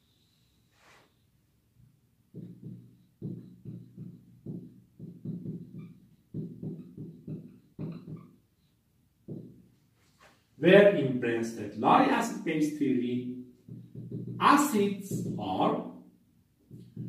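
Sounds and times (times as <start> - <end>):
marker squeaking on whiteboard: 2.4 - 10.4, 13.6 - 15.6.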